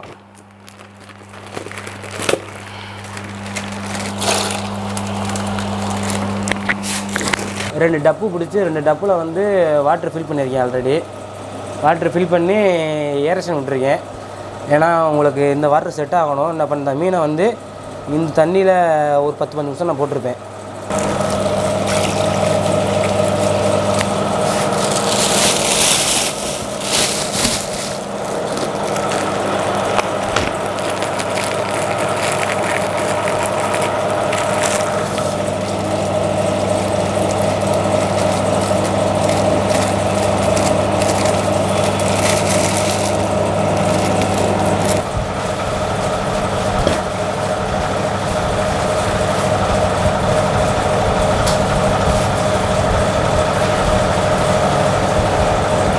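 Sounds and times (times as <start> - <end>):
plastic wrapping crinkling: 0.0 - 7.7, 20.9 - 45.1
air pump humming: 0.0 - 55.9.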